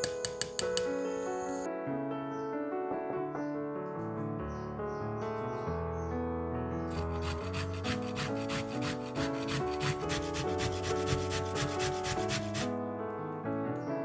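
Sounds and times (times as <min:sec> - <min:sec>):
piano music: 0:00.0 - 0:14.0
coconut rasping on metal grater: 0:06.9 - 0:12.7.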